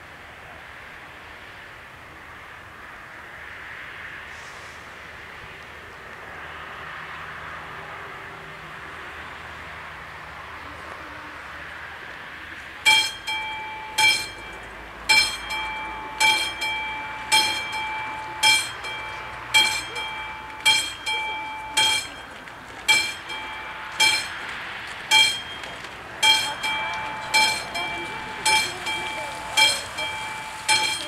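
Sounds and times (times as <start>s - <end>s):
level crossing warning bell: 12.8s - 31.0s.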